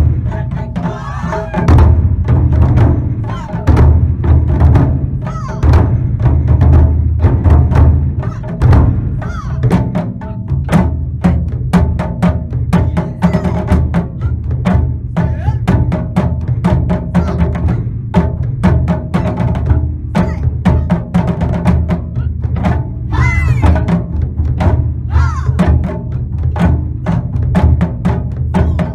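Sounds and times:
deep drum booms: 0.0 - 28.9.

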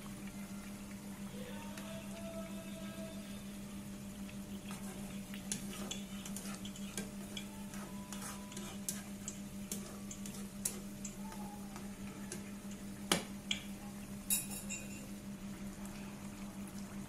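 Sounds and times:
curry bubbling in a pan: 3.6 - 14.3.

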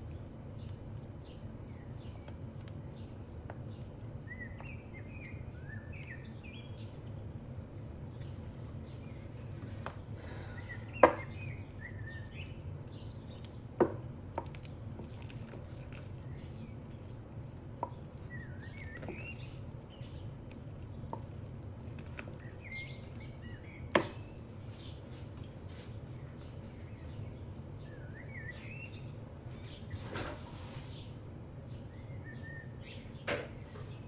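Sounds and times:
birds chirping faintly: 0.0 - 34.0
steady low hum: 0.0 - 34.0.

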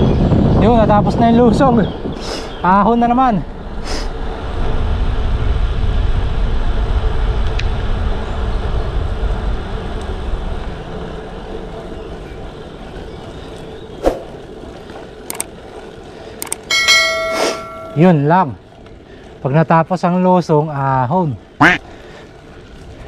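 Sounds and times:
wind rumbling on microphone: 0.0 - 19.5
tyre noise on road: 0.0 - 23.0
sharp clicks: 15.2 - 15.5, 16.4 - 16.7.

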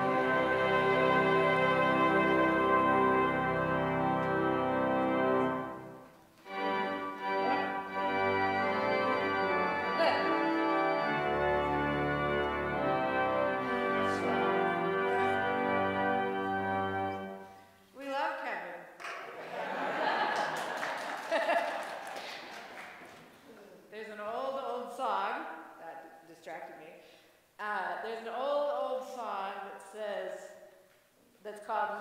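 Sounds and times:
organ playing held chords: 0.0 - 17.5.

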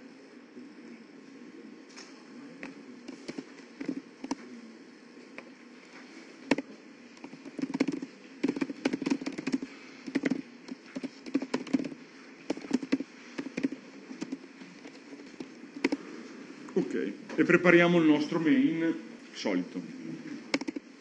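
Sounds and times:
typing on computer keyboard: 3.1 - 4.4, 7.2 - 16.0, 20.5 - 20.8.

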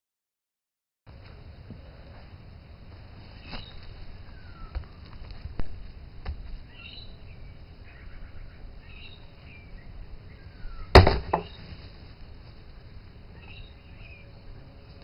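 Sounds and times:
bird chirps: 3.4 - 5.0, 6.7 - 11.7, 13.3 - 14.5
sledgehammer striking hard drive: 11.0 - 11.6.

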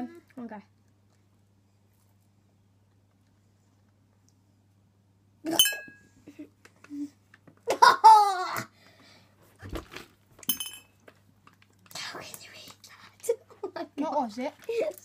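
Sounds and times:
girl laughing: 6.2 - 8.7.

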